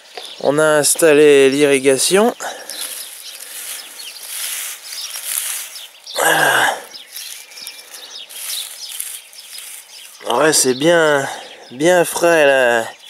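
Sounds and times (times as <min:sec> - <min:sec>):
straw rustling and crackling: 0:00.1 - 0:11.3
low grunt: 0:06.2 - 0:07.0.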